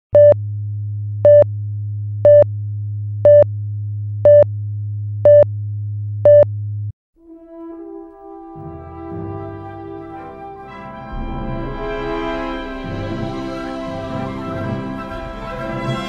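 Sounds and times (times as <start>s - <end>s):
music with held notes: 7.2s - 16.0s.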